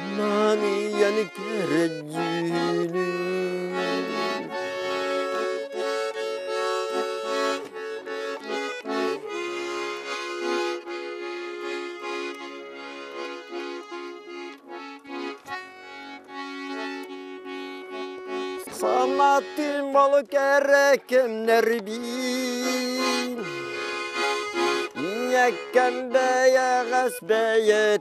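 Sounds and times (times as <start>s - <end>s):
button accordion playing: 0.0s - 28.0s.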